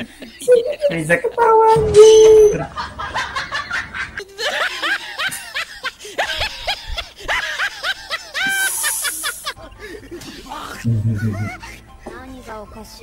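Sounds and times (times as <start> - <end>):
high-pitched snickering laughter: 4.3 - 11.8.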